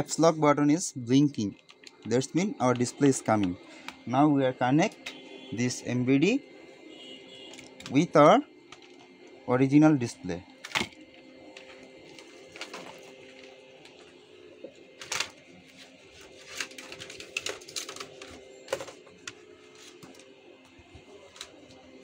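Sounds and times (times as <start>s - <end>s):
steady faint hum: 0.0s - 22.0s
clicks and knocks of handling parts: 16.4s - 20.4s.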